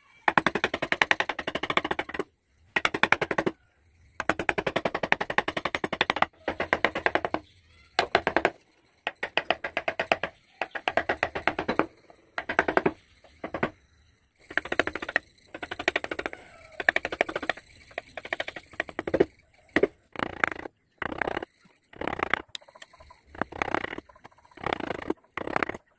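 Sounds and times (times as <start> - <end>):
chisel tapping into wood: 0.3 - 2.2, 4.2 - 7.4, 8.0 - 13.7, 14.5 - 21.4.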